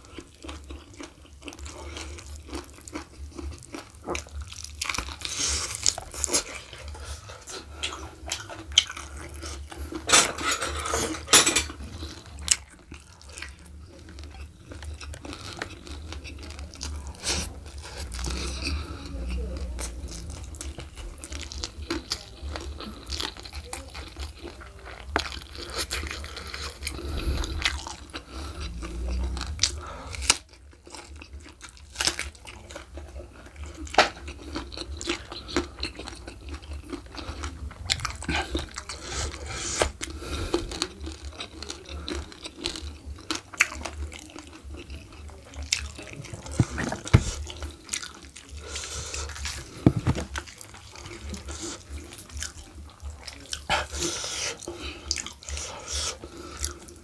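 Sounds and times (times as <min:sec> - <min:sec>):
chewing and crunching food: 0:00.0 - 0:57.0
hands squishing food: 0:11.8 - 0:57.0.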